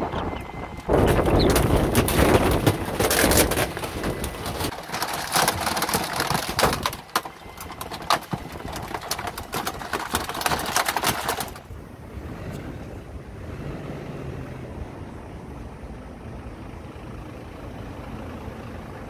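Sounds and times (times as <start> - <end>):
garbage truck compactor crushing: 0.0 - 11.9
cracks snaps and creaks: 0.2 - 11.7.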